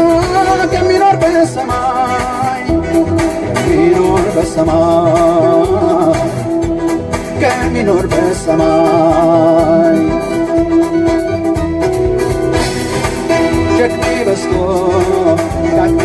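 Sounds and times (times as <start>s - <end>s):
person singing wavering notes: 0.0s - 12.2s
keyboard and steady beat: 0.0s - 16.0s.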